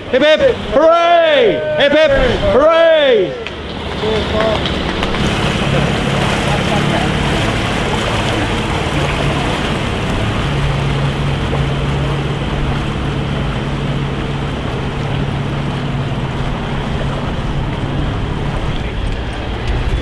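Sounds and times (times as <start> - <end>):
boat engine humming: 0.0 - 20.0.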